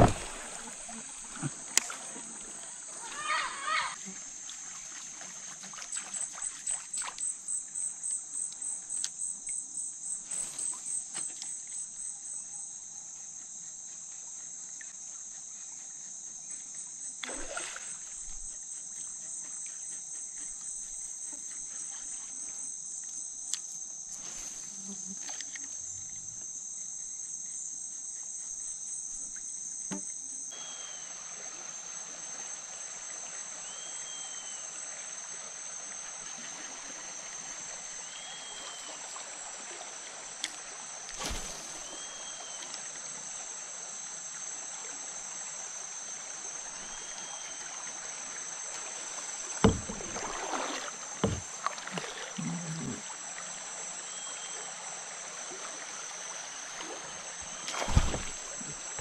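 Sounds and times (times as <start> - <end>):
knocks from kayak: 0.0 - 0.7, 29.9 - 30.1, 49.6 - 52.0, 57.7 - 59.0
water washing along kayak hull: 0.0 - 7.2, 35.1 - 53.9, 54.5 - 59.0
insects trilling: 0.0 - 59.0.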